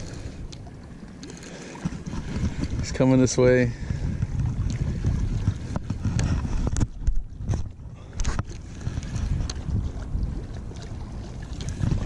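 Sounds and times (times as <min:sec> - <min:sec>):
reel and rod clicks and knocks: 0:00.0 - 0:09.8, 0:11.5 - 0:12.0
wind rumbling on microphone: 0:00.0 - 0:12.0
fishing reel cranking: 0:01.2 - 0:02.4.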